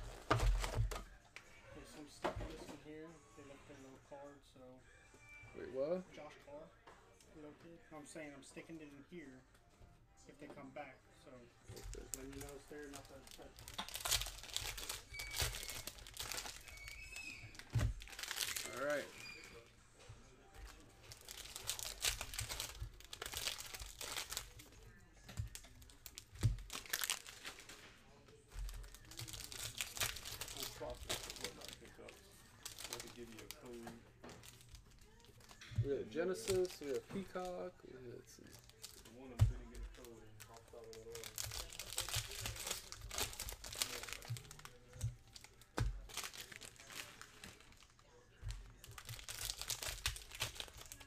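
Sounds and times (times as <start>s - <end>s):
plastic wrapper tearing and crinkling: 11.8s - 19.7s, 20.6s - 27.8s, 28.6s - 37.6s, 38.4s - 48.1s, 48.8s - 51.0s.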